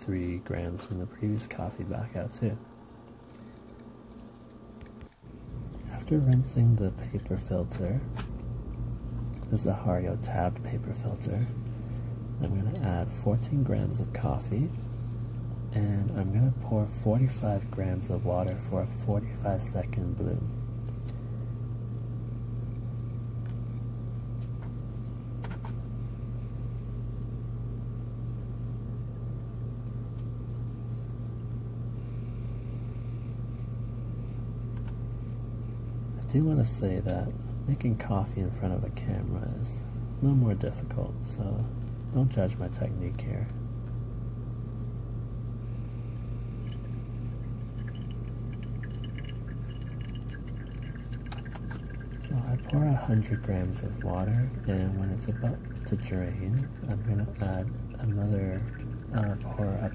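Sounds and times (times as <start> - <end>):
steady low hum: 0.0 - 59.9
water pouring onto coffee grounds: 46.5 - 59.9
water splashing and dripping: 47.8 - 52.9.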